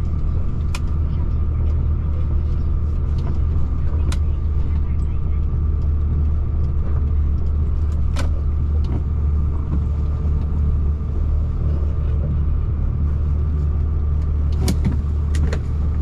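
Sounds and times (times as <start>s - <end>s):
truck engine hum: 0.0s - 16.0s.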